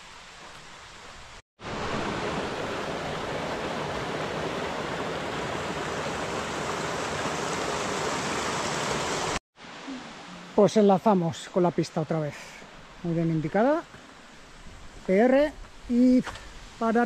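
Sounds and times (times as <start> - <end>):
waterfall rushing: 1.6 - 13.6.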